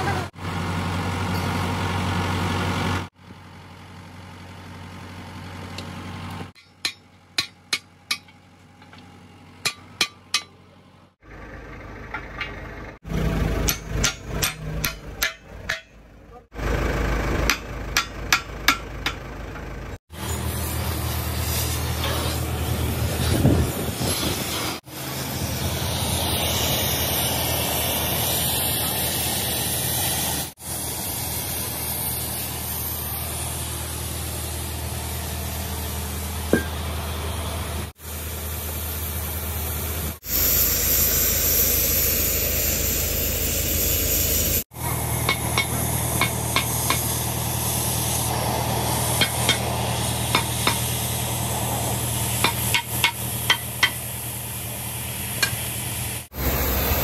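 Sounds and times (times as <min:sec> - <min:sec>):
low engine hum: 0:00.0 - 0:57.0
cutting torch hissing and crackling: 0:20.1 - 0:36.6, 0:37.9 - 0:57.0
loud even hiss: 0:20.1 - 0:36.6, 0:38.0 - 0:57.0.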